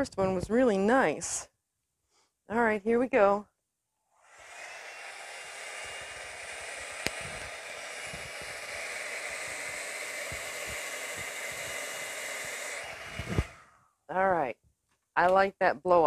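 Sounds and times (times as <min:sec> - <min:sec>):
hair dryer blowing: 0:04.2 - 0:13.8.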